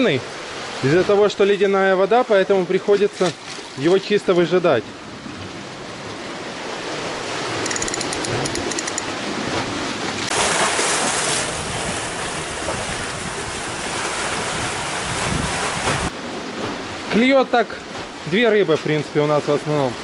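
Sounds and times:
waves splashing against seawall: 0:00.0 - 0:20.0
faint high ticks: 0:07.6 - 0:09.1.

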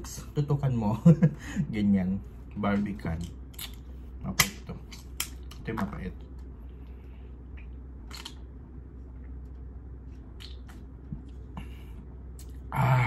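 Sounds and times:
steady low hum: 0:00.0 - 0:13.0
breathing: 0:01.4 - 0:01.7, 0:06.6 - 0:07.4, 0:11.6 - 0:12.1.

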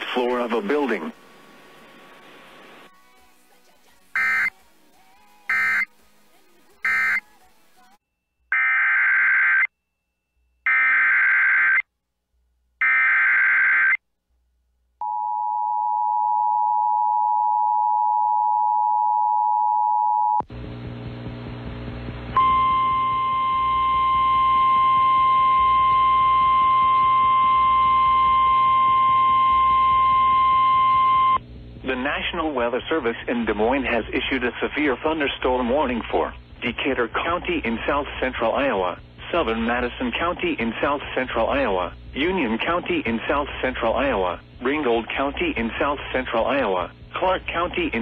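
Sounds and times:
radio static: 0:00.0 - 0:04.6, 0:31.8 - 0:48.0
two-tone attention signal: 0:04.2 - 0:04.5, 0:05.5 - 0:05.9, 0:06.8 - 0:07.2, 0:22.4 - 0:31.4
warning alarm tone: 0:04.2 - 0:04.5, 0:05.5 - 0:05.9, 0:06.8 - 0:07.2, 0:22.4 - 0:31.4
data bursts: 0:04.2 - 0:04.6, 0:05.5 - 0:07.6.

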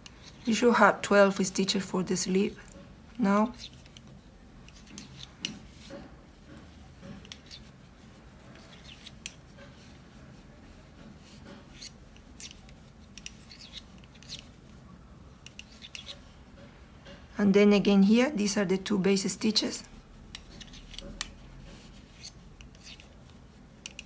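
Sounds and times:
metal knitting needles clicking: 0:02.6 - 0:06.0, 0:07.0 - 0:07.8, 0:11.7 - 0:14.6, 0:15.4 - 0:16.3, 0:20.3 - 0:23.2, 0:23.8 - 0:24.0.

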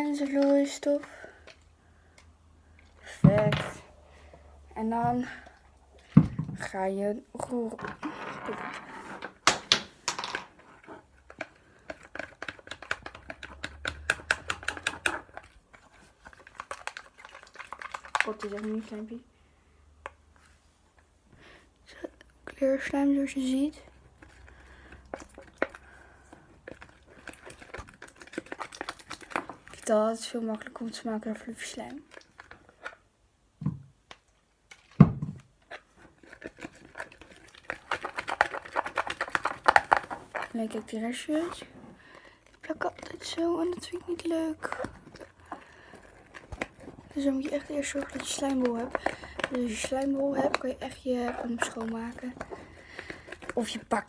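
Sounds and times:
slime stirred wet clicking: 0:11.2 - 0:19.0, 0:24.0 - 0:29.9, 0:43.8 - 0:54.0.

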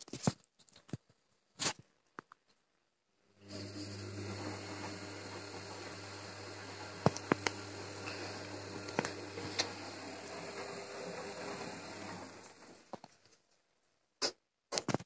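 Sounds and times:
washing machine motor hum: 0:03.3 - 0:12.9
wet laundry swishing in drum: 0:04.0 - 0:12.8.

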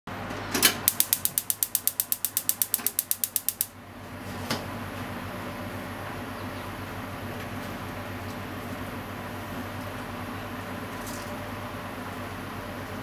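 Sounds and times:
gas stove igniter clicking: 0:00.6 - 0:03.7.

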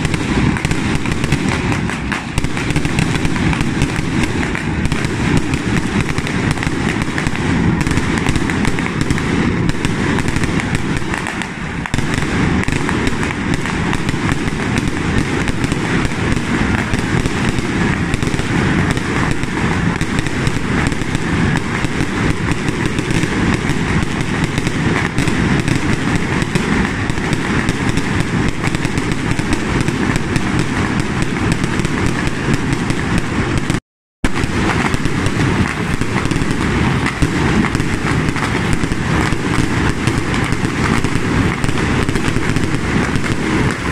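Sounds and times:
firecrackers crackling: 0:00.0 - 0:43.9.

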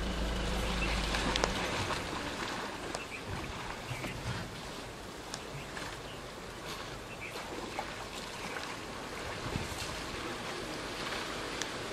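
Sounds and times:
steady rushing noise: 0:00.0 - 0:04.5
water sloshing and splashing: 0:00.0 - 0:11.9.

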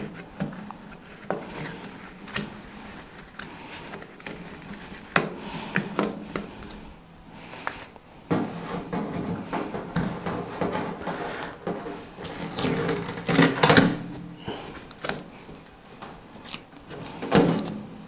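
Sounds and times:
packing film rustling: 0:00.0 - 0:06.7.

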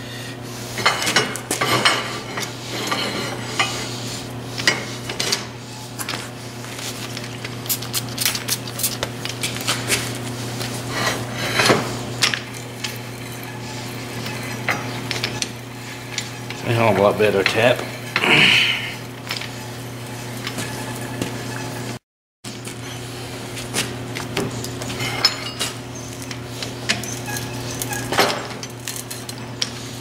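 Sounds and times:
steady low hum: 0:00.0 - 0:22.0
steel clinking and clanking: 0:24.8 - 0:25.8.

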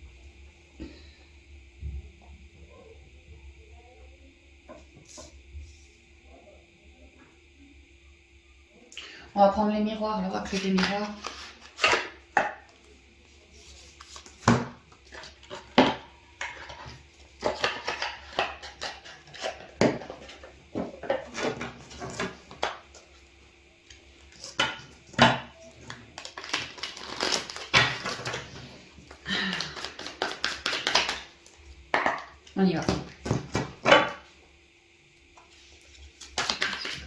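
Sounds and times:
cards being shuffled: 0:10.5 - 0:12.2, 0:13.5 - 0:15.6, 0:26.2 - 0:28.6, 0:29.4 - 0:31.3, 0:35.5 - 0:37.0.

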